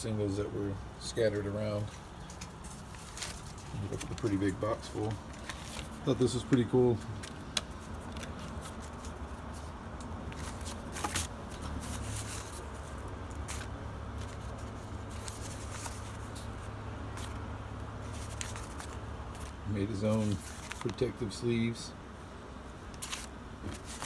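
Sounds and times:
steady low hum: 0.0s - 24.0s
paper record sleeves rustling: 1.0s - 21.8s, 22.7s - 24.0s
crisp paper clicks: 5.2s - 9.2s, 18.1s - 19.6s, 22.9s - 24.0s.

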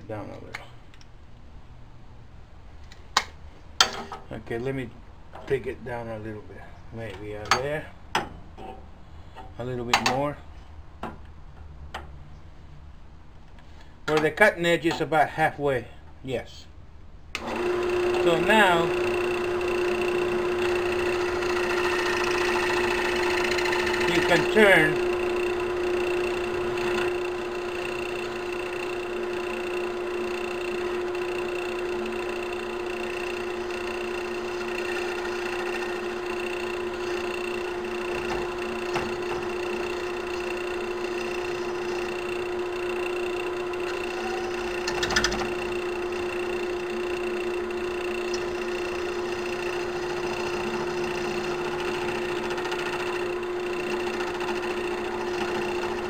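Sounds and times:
cutter turning brass: 17.4s - 56.0s
wood lathe motor hum: 17.4s - 56.0s.

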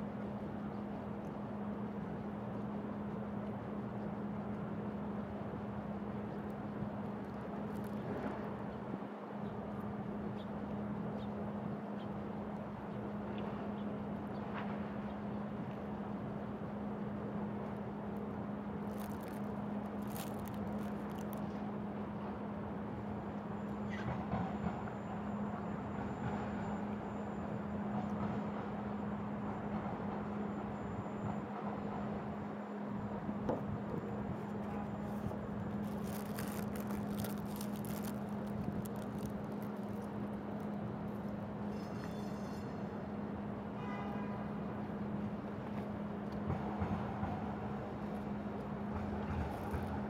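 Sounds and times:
constant low hum: 0.0s - 50.0s
distant traffic: 0.0s - 50.0s
short crackles and clicks: 18.8s - 21.6s, 35.0s - 41.2s.

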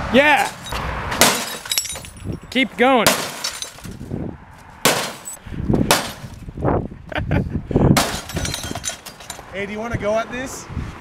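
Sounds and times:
glass and plastic shards clattering: 0.5s - 4.0s, 5.0s - 5.4s, 8.0s - 9.5s.

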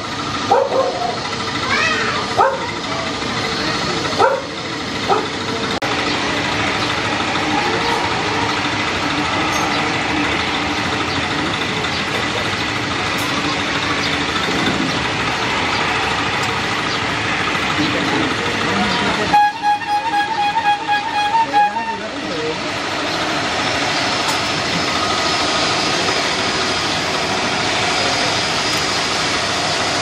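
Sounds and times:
jet aircraft engine noise: 0.0s - 30.0s
dog barking: 0.5s - 1.2s, 2.4s - 2.7s, 4.2s - 4.5s, 5.1s - 5.3s.

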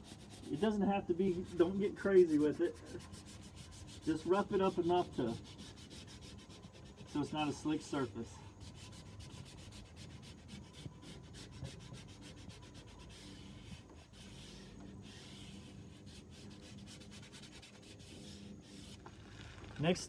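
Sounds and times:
sandpaper scratching plastic: 0.0s - 20.0s.

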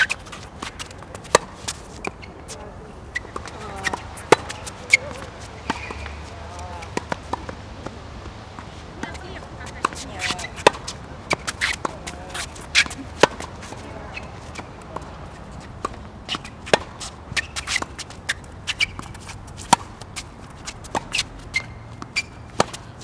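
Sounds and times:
footsteps and shoe scuffs: 0.0s - 7.3s
racket hitting tennis ball: 0.0s - 23.0s
ball bouncing on court: 3.2s - 15.1s.

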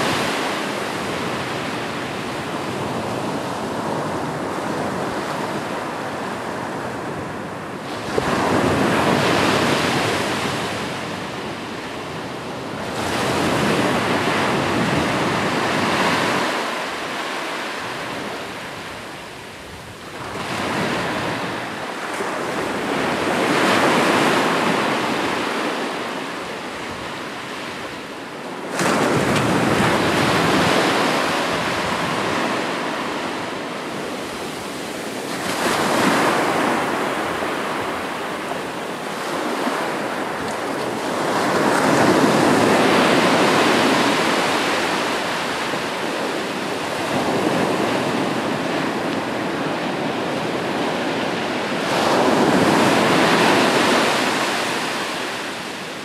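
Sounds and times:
waves breaking on shore: 0.0s - 56.0s.

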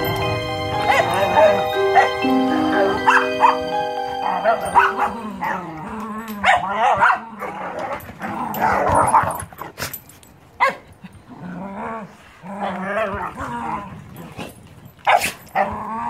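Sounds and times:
dogs growling: 5.0s - 9.8s, 11.3s - 14.7s, 15.5s - 16.0s.

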